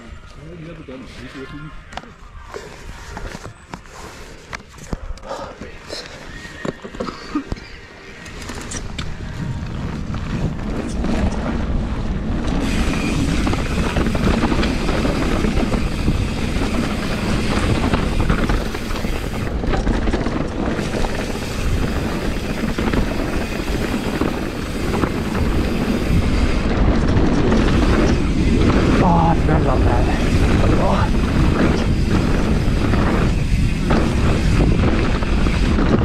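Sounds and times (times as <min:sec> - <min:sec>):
wind buffeting microphone: 0:08.5 - 0:36.0.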